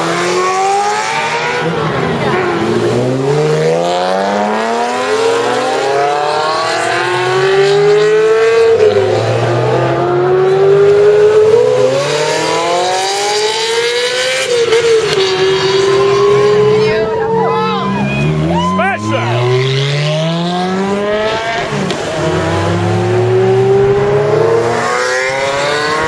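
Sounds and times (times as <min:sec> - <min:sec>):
sports car engine accelerating: 0:00.0 - 0:26.0.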